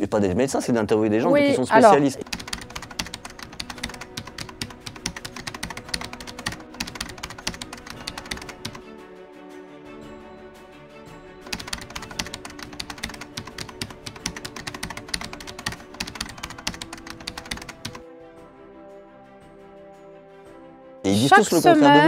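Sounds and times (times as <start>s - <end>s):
background music with held tones: 0.0s - 22.0s
keyboard typing: 2.1s - 8.8s, 11.4s - 18.0s.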